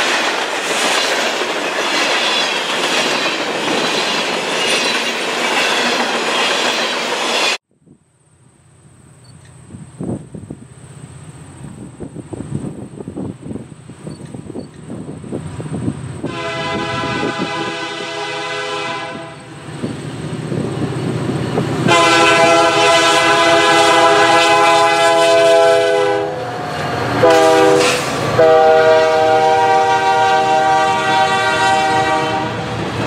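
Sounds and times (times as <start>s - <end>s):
train rumbling past: 0.0s - 33.0s
locomotive air horn blasts: 16.2s - 19.6s, 21.8s - 26.6s, 27.2s - 32.8s.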